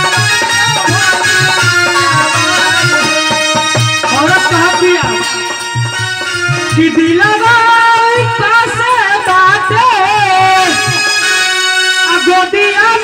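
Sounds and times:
drum beat: 0.0 - 9.0
keyboard melody: 0.0 - 13.0
person singing into a microphone: 0.0 - 13.0.

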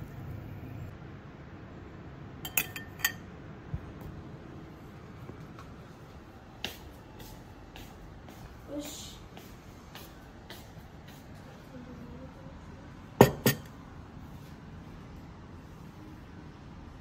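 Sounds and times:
faint room noise: 0.0 - 17.0
metal utensil clinking ceramic bowl: 2.4 - 3.2.

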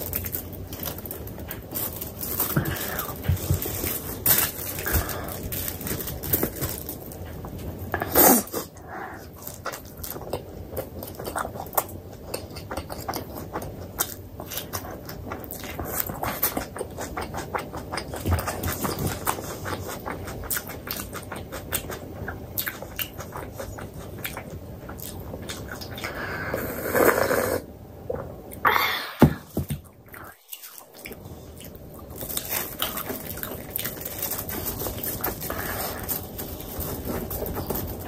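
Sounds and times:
close chewing mouth clicks: 9.6 - 26.1.

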